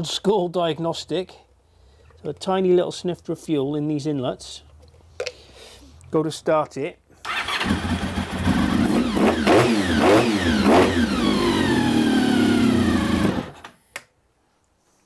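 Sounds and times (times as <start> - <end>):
motorcycle engine revving: 7.3 - 13.6.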